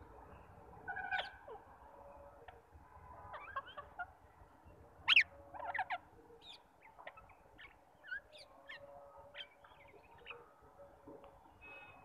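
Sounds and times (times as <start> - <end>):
parakeets calling: 5.1 - 10.4.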